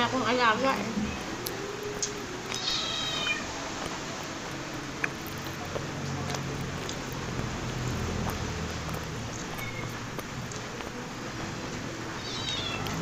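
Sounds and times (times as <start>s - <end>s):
cat meowing: 2.5s - 3.5s, 9.5s - 10.0s, 12.1s - 13.0s.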